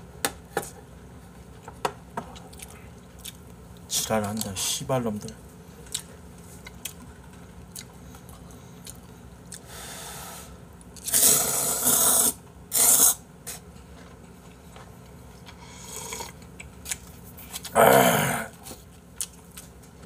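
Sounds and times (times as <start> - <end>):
person slurping noodles: 11.1 - 13.2, 15.7 - 16.4.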